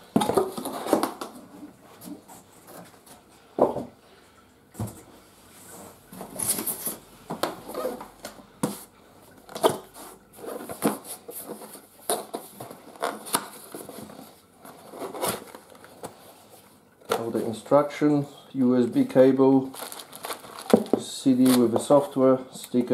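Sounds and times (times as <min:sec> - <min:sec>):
cardboard scraping and rustling: 0:00.0 - 0:03.0, 0:06.2 - 0:08.9, 0:09.5 - 0:16.4, 0:19.7 - 0:21.8.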